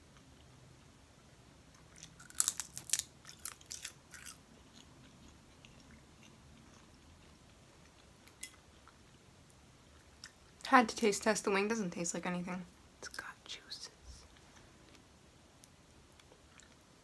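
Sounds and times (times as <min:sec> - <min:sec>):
crisp chewing crunches: 0:01.7 - 0:09.2.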